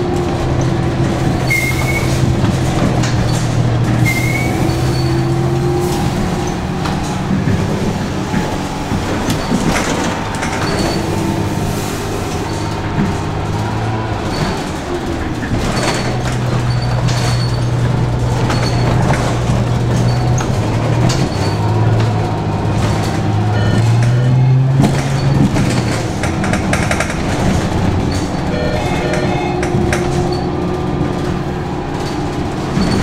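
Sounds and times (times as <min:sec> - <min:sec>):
bus engine hum: 0:00.0 - 0:33.0
body rattles and knocks: 0:06.6 - 0:11.4, 0:12.4 - 0:24.1, 0:24.7 - 0:33.0.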